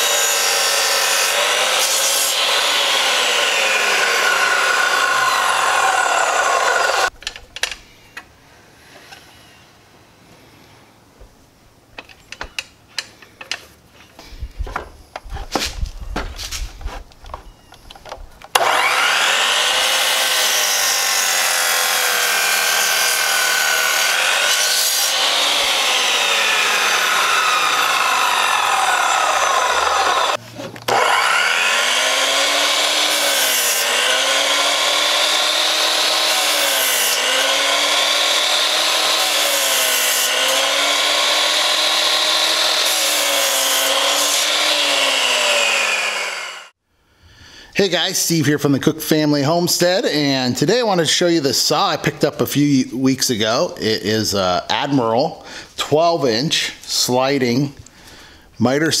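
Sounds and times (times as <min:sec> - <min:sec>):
miter saw cutting wood: 0:00.0 - 0:07.2, 0:18.5 - 0:46.8.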